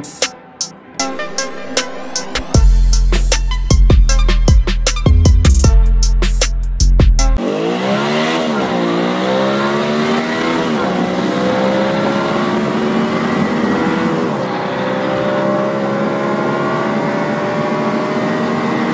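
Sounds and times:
simulated car engine revving: 7.4s - 18.9s.

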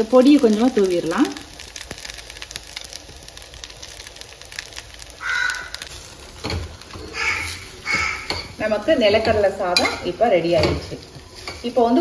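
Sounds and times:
faint frying pan crackling: 0.0s - 12.0s
crow cawing: 5.2s - 5.9s, 7.1s - 8.5s.

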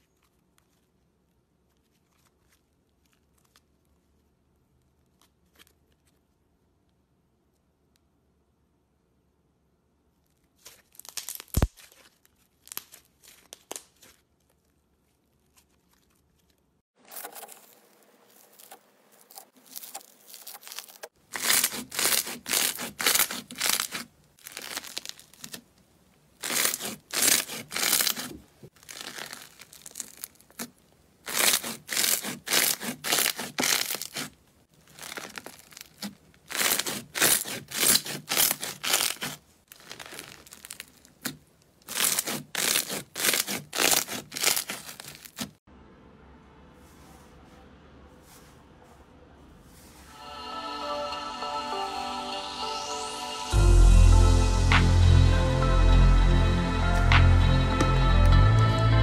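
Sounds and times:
soft slime crackles: 0.0s - 6.6s, 10.1s - 25.8s, 26.4s - 45.6s
slime crackling and popping: 10.6s - 14.6s, 17.2s - 25.7s, 26.4s - 45.6s.

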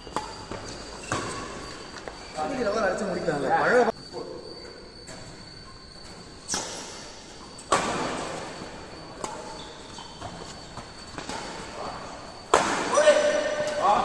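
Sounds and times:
rackets hitting shuttlecock: 0.0s - 1.7s.

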